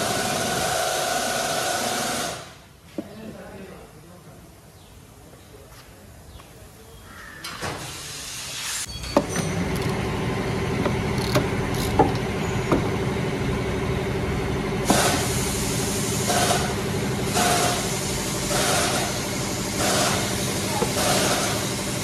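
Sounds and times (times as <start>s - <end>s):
engine idling: 9.0s - 22.0s
ratchet wrench strokes: 9.7s - 10.0s, 11.1s - 12.2s
sharp metallic clicks: 11.1s - 12.3s.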